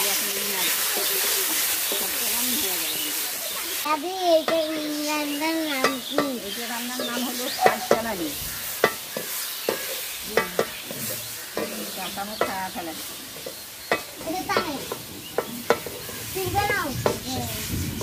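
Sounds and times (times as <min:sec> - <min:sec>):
steady sizzle: 0:00.0 - 0:18.0
spatula scraping metal pan: 0:04.4 - 0:17.6.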